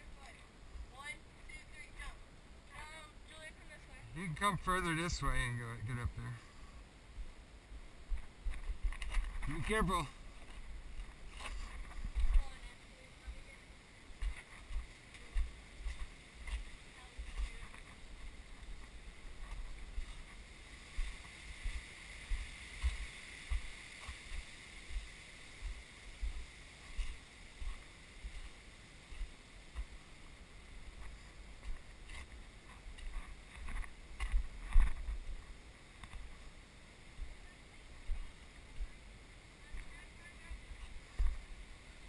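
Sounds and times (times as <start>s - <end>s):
faint high hiss: 0.0s - 42.0s
footsteps on boulders: 8.0s - 13.5s, 14.1s - 36.6s, 39.7s - 41.6s.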